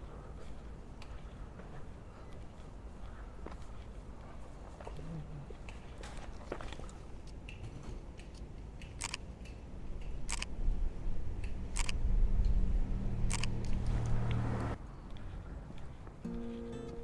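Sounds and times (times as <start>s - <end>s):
camera shutter clicks: 9.0s - 9.2s, 10.2s - 10.5s, 11.7s - 12.0s, 13.3s - 13.8s.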